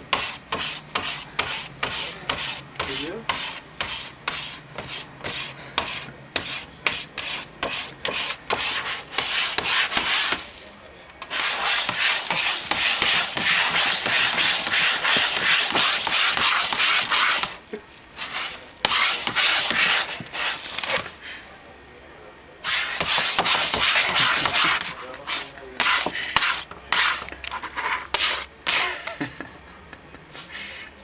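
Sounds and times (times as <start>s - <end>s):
cat scratching shopping bag: 0.0s - 21.2s, 22.6s - 29.0s.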